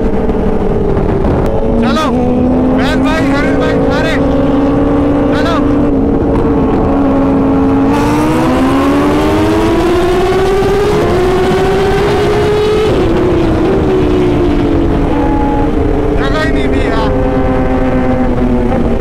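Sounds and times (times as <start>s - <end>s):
motorcycle engine accelerating: 0.0s - 19.0s
wind and road noise: 0.0s - 19.0s.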